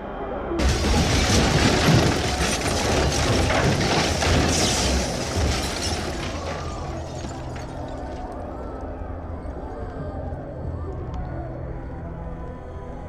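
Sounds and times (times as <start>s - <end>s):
debris crackling and clattering: 0.6s - 8.4s.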